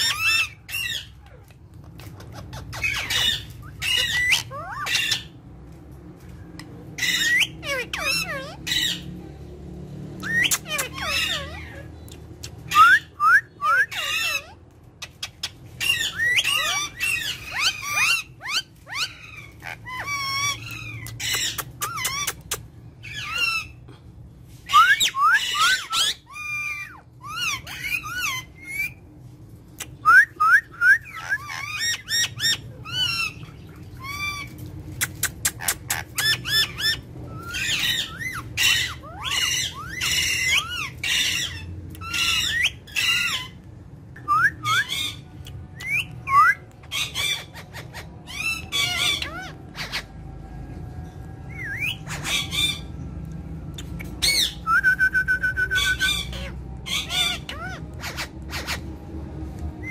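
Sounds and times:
parakeets squawking and screeching: 0:00.0 - 0:59.9
whistled bird notes: 0:24.6 - 0:29.0, 0:51.2 - 0:53.0, 0:53.7 - 0:58.8.

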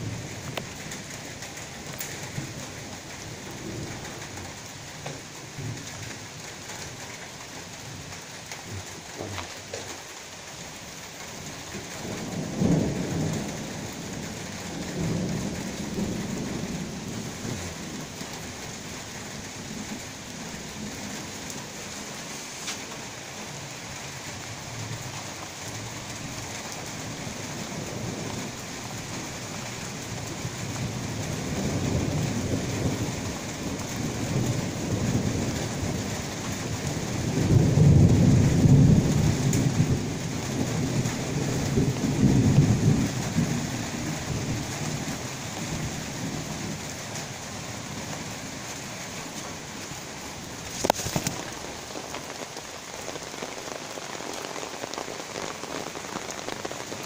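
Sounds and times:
heavy rain pattering: 0:00.0 - 0:57.0
rolling thunder: 0:11.8 - 0:22.2, 0:30.1 - 0:47.0.

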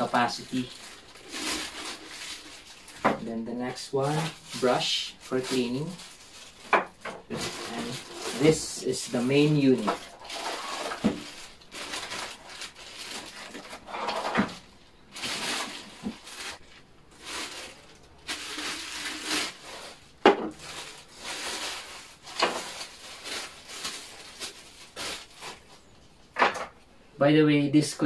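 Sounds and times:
plastic wrapping crinkling: 0:00.0 - 0:26.4.

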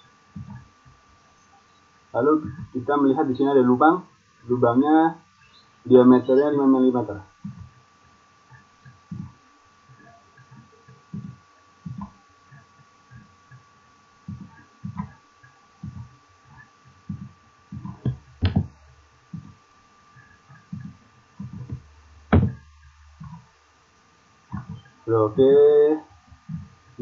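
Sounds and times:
faint high whine: 0:00.0 - 0:27.0
soft thumps of mouse and keyboard: 0:00.4 - 0:00.6, 0:07.4 - 0:07.8, 0:08.5 - 0:13.6, 0:14.3 - 0:15.2, 0:15.8 - 0:19.6, 0:20.6 - 0:22.6.

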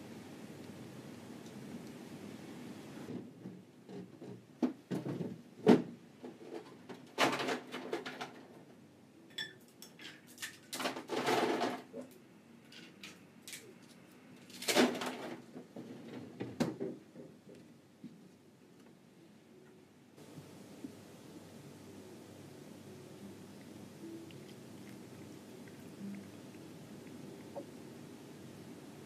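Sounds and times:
scraping or rustling: 0:10.4 - 0:12.1.

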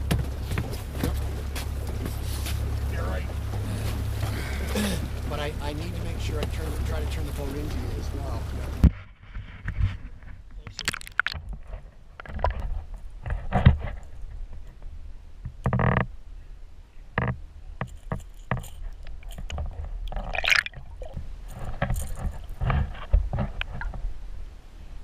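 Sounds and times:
knocks and bumps: 0:00.0 - 0:02.2
muffled underwater water moving: 0:00.0 - 0:25.0.

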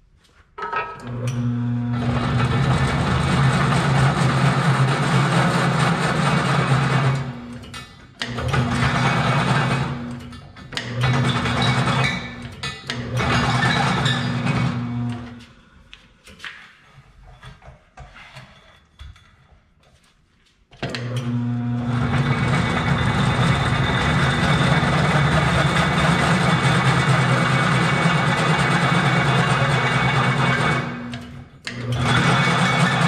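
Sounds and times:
drill press cutting steel pipe: 0:01.5 - 0:15.4, 0:21.0 - 0:33.0.

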